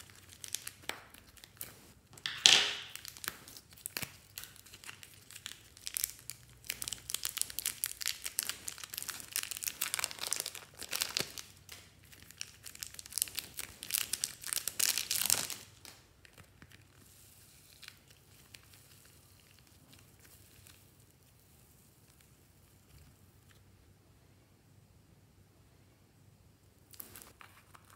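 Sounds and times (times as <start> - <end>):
plastic packets crinkling: 0.0 - 21.0.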